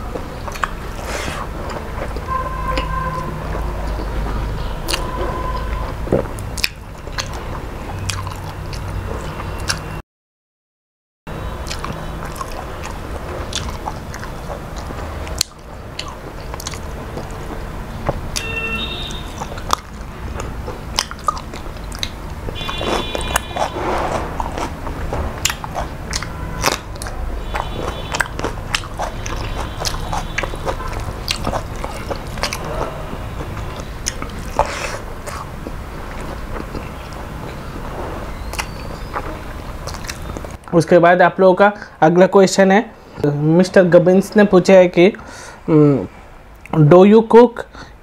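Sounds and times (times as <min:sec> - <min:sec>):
man chewing and smacking: 0:00.0 - 0:10.0, 0:11.5 - 0:40.7
lip and tongue clicks: 0:00.4 - 0:00.8, 0:04.8 - 0:09.9, 0:11.6 - 0:18.5, 0:19.1 - 0:37.7, 0:38.3 - 0:40.6.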